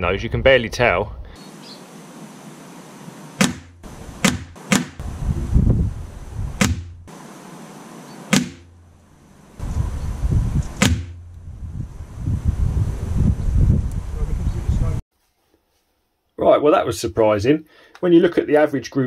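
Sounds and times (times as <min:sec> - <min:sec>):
pellets striking paper target: 0:03.4 - 0:05.0, 0:06.6 - 0:07.0, 0:08.3 - 0:08.7, 0:10.8 - 0:11.2
wind buffeting microphone: 0:05.0 - 0:06.8, 0:09.6 - 0:15.0.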